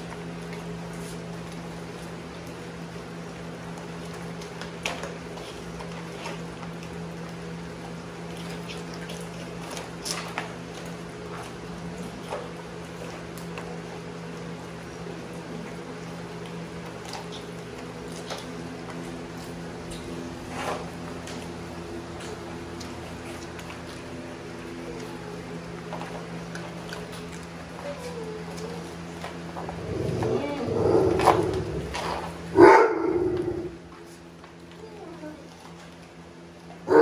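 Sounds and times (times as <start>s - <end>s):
low hum: 19.4s - 34.1s.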